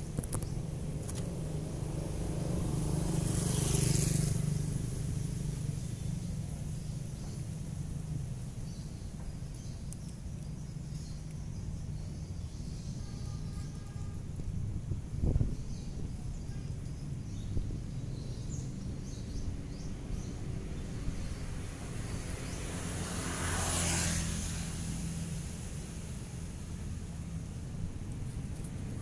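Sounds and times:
low traffic rumble: 0.0s - 29.0s
vehicle passing: 0.8s - 6.8s, 20.0s - 29.0s.

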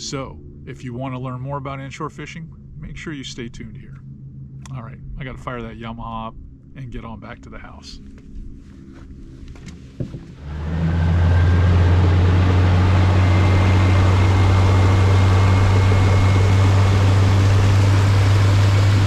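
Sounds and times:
knock: 10.0s - 10.3s
outboard motor running: 10.0s - 19.0s.

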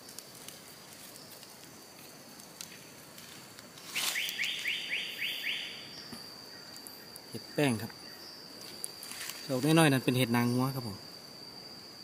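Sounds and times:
high-pitched insect drone: 3.7s - 12.0s
bird whistling rising notes: 3.9s - 6.0s.

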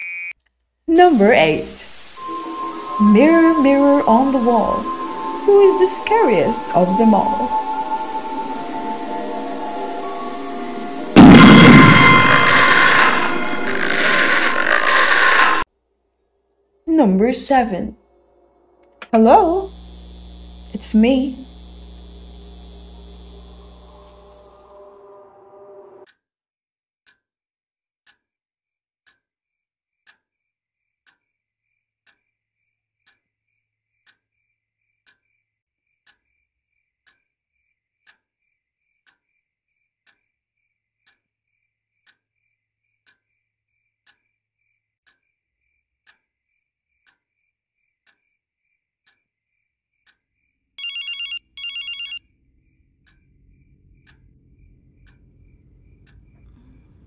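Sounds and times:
clock ticking: 2.9s - 7.7s
low rumble: 8.6s - 15.6s, 53.2s - 57.0s
telephone ringing: 50.8s - 52.2s.

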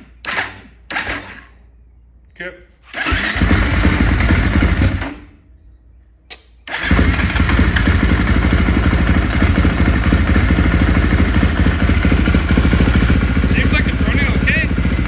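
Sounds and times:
motorcycle engine starting and idling: 0.0s - 1.7s, 2.8s - 5.5s, 6.6s - 15.0s
short click: 6.3s - 6.6s.

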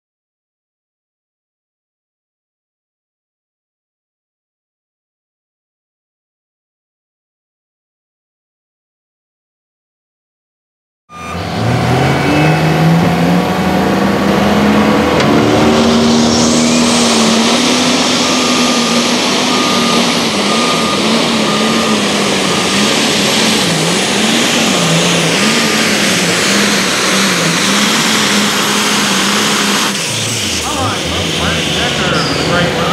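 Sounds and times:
high whine: 11.1s - 32.9s
tractor engine at full throttle: 11.1s - 32.9s.

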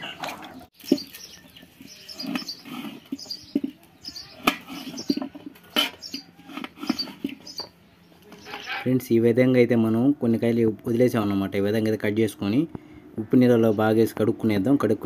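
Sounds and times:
small birds chirping: 0.4s - 9.0s.

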